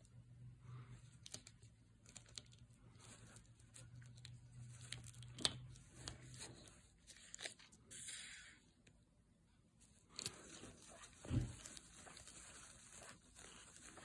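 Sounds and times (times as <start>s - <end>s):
low steady hum: 0.0s - 14.0s
small crackles and clicks: 1.0s - 6.6s
paper towel rustling: 10.1s - 14.0s.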